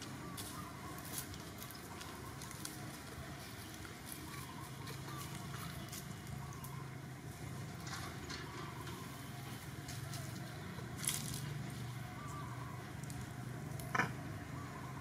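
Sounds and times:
dry leaves rustling: 0.0s - 6.9s, 9.5s - 13.4s.

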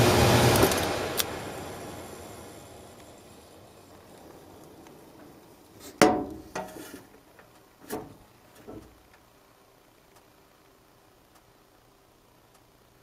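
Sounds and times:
faint hum: 0.0s - 13.0s
metal panel knocks and clunks: 6.0s - 7.1s, 7.8s - 9.0s.

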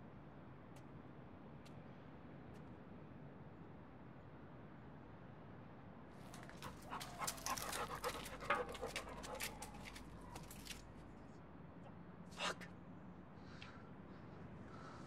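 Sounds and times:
dog panting hard: 6.3s - 10.8s.

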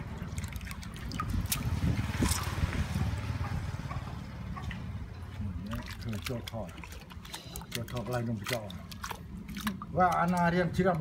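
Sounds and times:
water splash: 0.0s - 3.8s, 5.6s - 10.4s
water sloshing and dripping: 0.0s - 11.0s.

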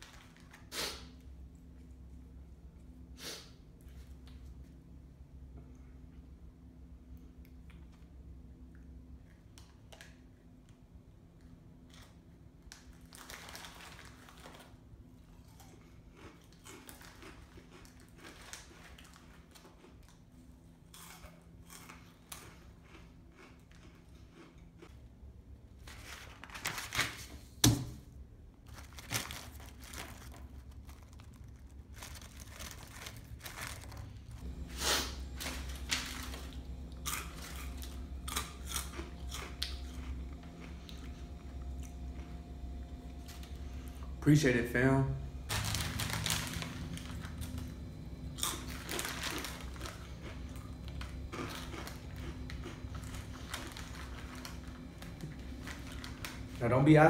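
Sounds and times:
foil snack bag crinkling: 0.0s - 1.0s, 12.7s - 14.8s, 15.5s - 20.2s, 25.8s - 27.3s, 28.6s - 41.2s, 45.5s - 57.0s
low steady hum: 0.0s - 57.0s
chips being eaten: 12.8s - 20.3s, 20.9s - 25.0s, 28.7s - 44.2s, 45.5s - 56.6s.

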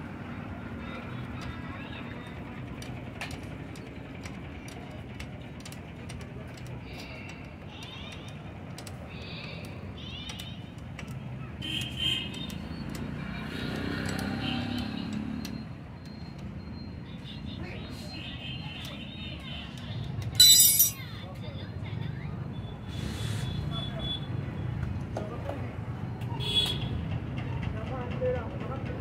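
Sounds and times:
traffic hum: 19.6s - 21.8s
spanner clinking on metal: 20.4s - 21.0s.

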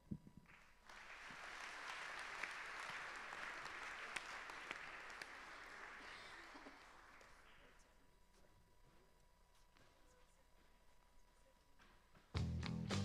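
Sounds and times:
audience applauding: 0.5s - 7.9s.

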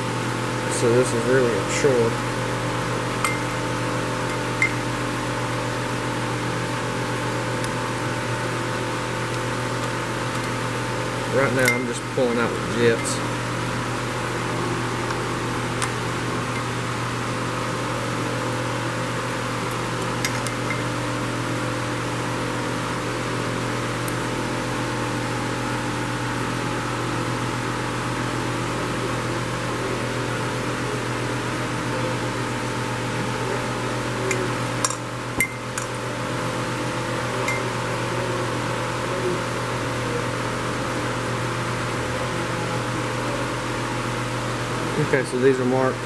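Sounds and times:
machine humming: 0.0s - 26.7s.

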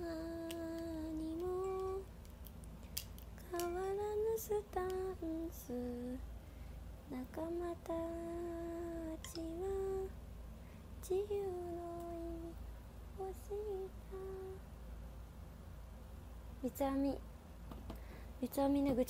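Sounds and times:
woman humming a slow tune: 0.0s - 2.1s, 7.1s - 10.1s, 11.0s - 12.6s, 13.2s - 14.6s.

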